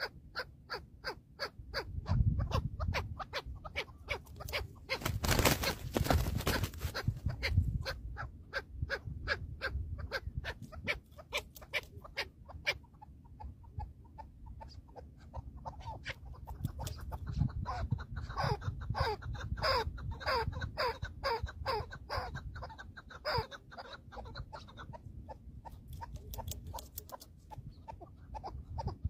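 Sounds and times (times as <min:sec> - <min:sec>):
wings flapping: 0:04.3 - 0:07.3.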